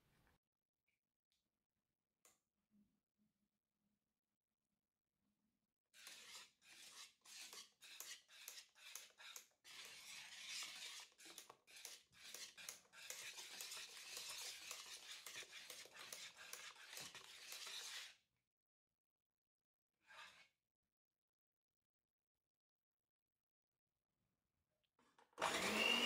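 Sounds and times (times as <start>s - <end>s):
whisk stirring batter in bowl: 6.0s - 18.2s.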